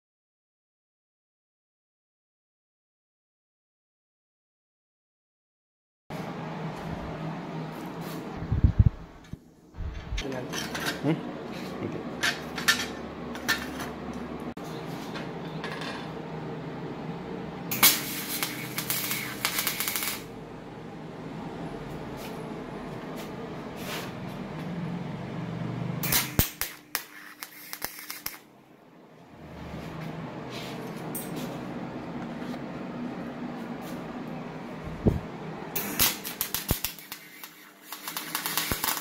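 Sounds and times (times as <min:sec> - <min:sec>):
steady hum: 0:06.1 - 0:38.8
welding arc crackling and sizzling: 0:17.7 - 0:20.4, 0:26.0 - 0:28.5, 0:35.8 - 0:39.0.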